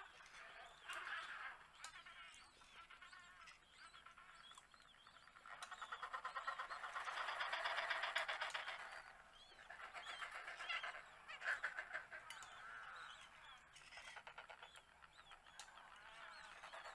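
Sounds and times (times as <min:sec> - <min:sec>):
penguins calling: 0:06.0 - 0:14.9.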